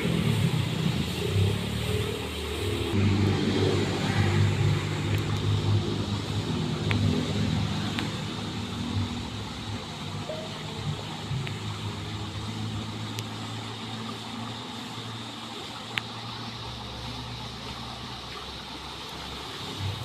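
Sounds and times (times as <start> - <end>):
distant motor humming: 0.0 - 20.0.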